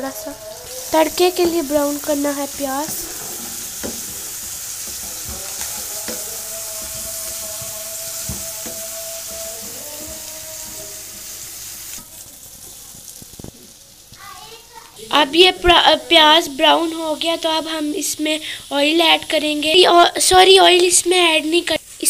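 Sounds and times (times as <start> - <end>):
onions sizzling in oil: 0.0 - 22.0
spoon scraping a pan: 0.1 - 12.1.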